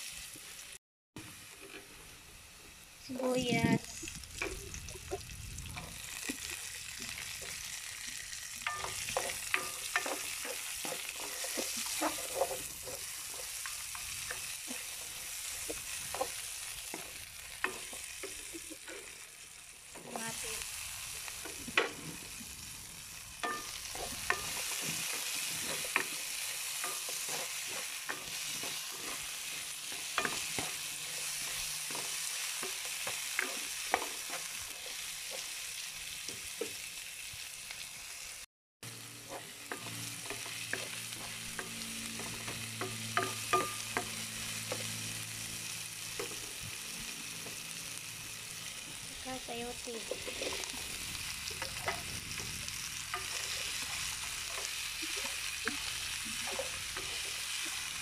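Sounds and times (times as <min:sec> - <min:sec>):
vegetables sizzling in oil: 0:00.0 - 0:58.0
utensil scraping a pan: 0:08.6 - 0:19.3, 0:23.4 - 0:35.6, 0:39.2 - 0:45.0.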